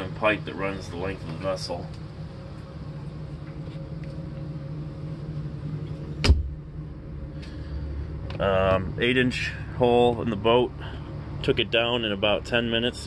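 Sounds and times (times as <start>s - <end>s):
low mechanical hum: 0.0s - 13.0s
hand thumping cabin door: 6.2s - 6.5s.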